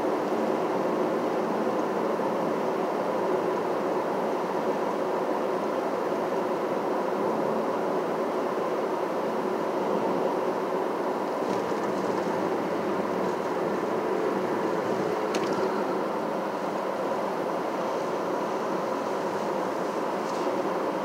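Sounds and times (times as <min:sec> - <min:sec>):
car road and tyre noise: 0:09.7 - 0:21.0.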